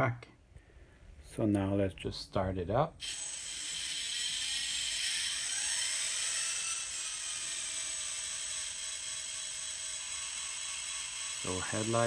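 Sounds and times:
small speaker engine whir: 3.0s - 12.0s.

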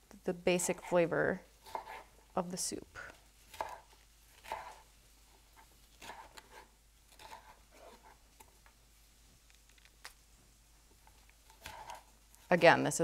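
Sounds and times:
knife slicing pepper: 1.6s - 2.1s, 3.5s - 8.5s, 11.1s - 12.1s.

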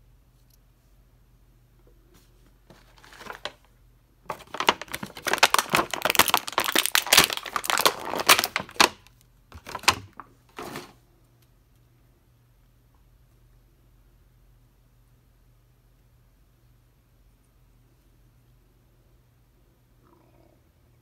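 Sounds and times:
plastic bag crinkling: 2.7s - 3.7s, 4.3s - 10.8s.

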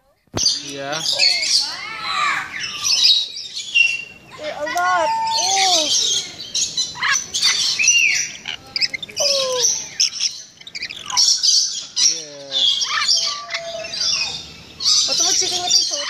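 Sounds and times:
lorikeets screeching and squawking: 0.4s - 16.0s.

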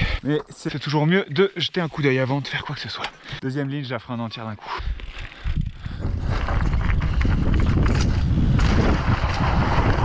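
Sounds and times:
bike tyres crunching on gravel: 5.0s - 10.0s
wind on microphone: 5.4s - 10.0s
bike clicking and knocking over stones: 6.0s - 10.0s.

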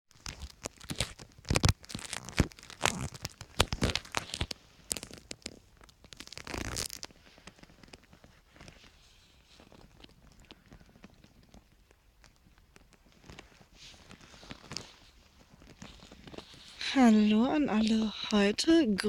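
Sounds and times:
footsteps crunching in snow: 13.1s - 18.4s.

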